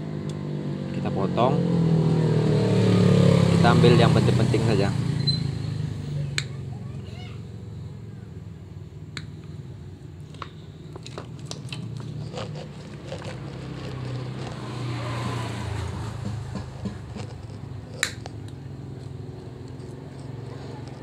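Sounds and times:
pliers snipping wires: 16.2s - 18.6s.

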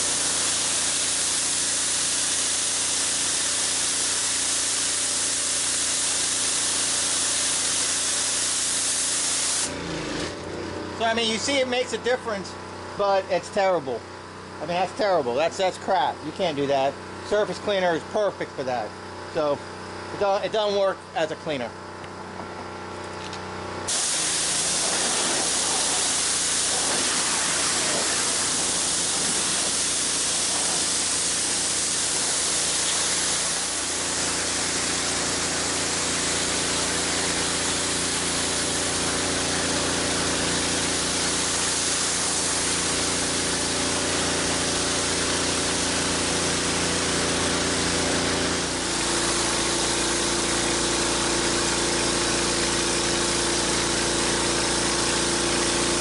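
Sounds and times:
pressure washer water hiss: 0.0s - 9.8s, 23.9s - 56.0s
pressure washer hum: 0.0s - 56.0s.

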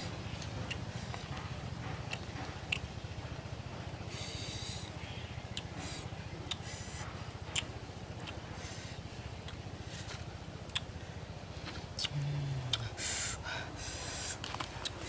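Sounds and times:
lip-smacking and chewing: 0.0s - 11.0s, 11.6s - 13.0s, 14.4s - 15.0s
steady low hum: 0.0s - 15.0s
crunching chews: 0.3s - 2.9s, 9.4s - 11.0s, 11.6s - 12.8s, 14.3s - 15.0s
person humming mm: 12.0s - 13.4s.

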